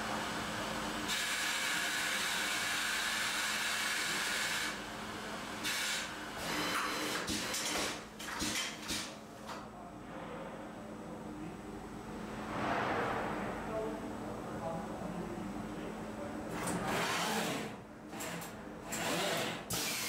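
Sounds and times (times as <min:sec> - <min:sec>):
pneumatic clicks and knocks: 0:07.2 - 0:09.1.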